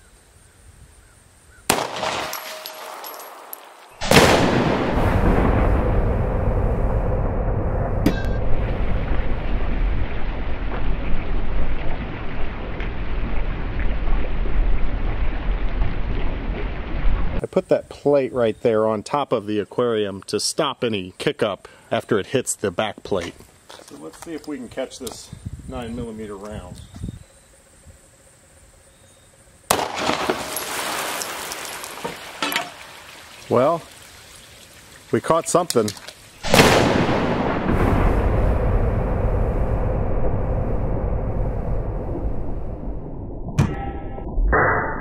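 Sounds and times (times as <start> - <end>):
pistol shot: 1.7 - 5.0, 29.7 - 30.6, 36.4 - 37.6
sharp crack: 1.7 - 6.6, 7.8 - 14.2, 29.7 - 32.8, 35.6 - 38.9
deep rumbling roar with crackles: 4.1 - 17.4, 36.5 - 43.6
water gushing and splashing: 8.5 - 17.4, 29.9 - 38.8.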